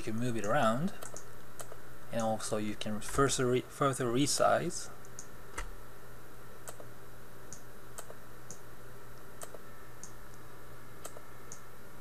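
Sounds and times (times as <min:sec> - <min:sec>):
low electrical hum: 0:00.0 - 0:12.0
computer mouse clicking: 0:00.4 - 0:02.3, 0:06.6 - 0:06.9, 0:07.5 - 0:08.6, 0:09.2 - 0:10.4, 0:11.0 - 0:11.7.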